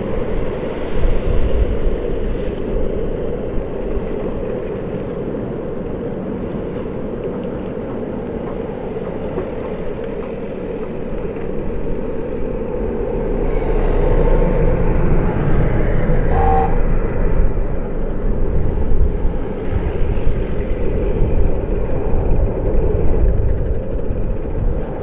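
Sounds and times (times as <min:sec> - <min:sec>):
bike tyres humming on asphalt: 0:00.0 - 0:25.0
short pitched tone: 0:16.2 - 0:17.0.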